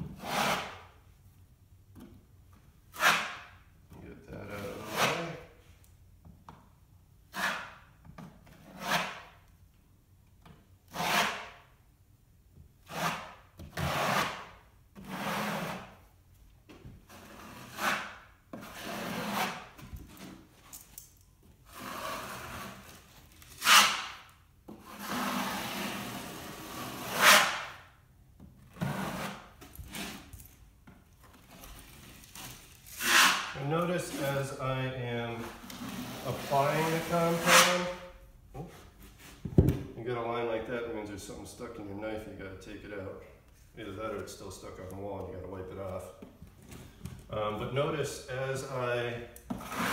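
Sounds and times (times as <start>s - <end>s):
taping knife scraping wall: 0.0s - 1.0s, 2.9s - 3.6s, 4.4s - 5.6s, 7.3s - 9.4s, 10.9s - 11.7s, 12.8s - 16.1s, 17.0s - 20.6s, 21.6s - 27.9s, 28.7s - 30.4s, 31.3s - 34.4s, 35.3s - 39.6s, 49.5s - 49.9s.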